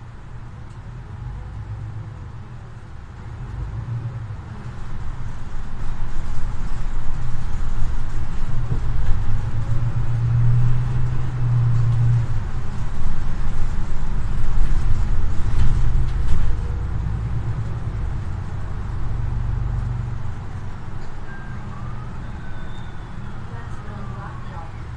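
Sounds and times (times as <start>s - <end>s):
bus diesel engine drone: 0.0s - 24.9s
road noise: 0.0s - 24.9s.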